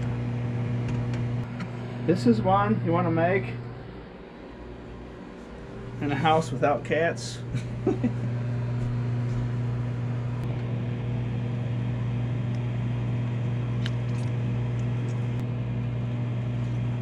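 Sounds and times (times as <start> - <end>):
microwave oven humming: 0.0 - 17.0.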